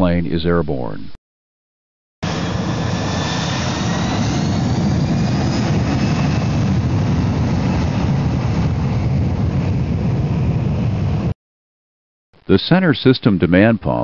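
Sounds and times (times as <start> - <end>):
jet engines at takeoff power: 2.2 - 11.4.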